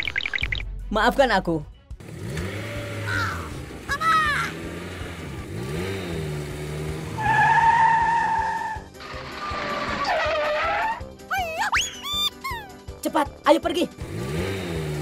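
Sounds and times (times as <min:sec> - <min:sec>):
cartoon motor engine revving: 0:02.0 - 0:07.6.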